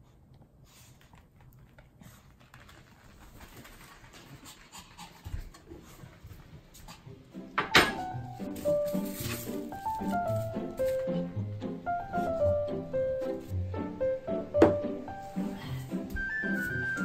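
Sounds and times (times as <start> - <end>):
dog panting: 0.0 - 7.6.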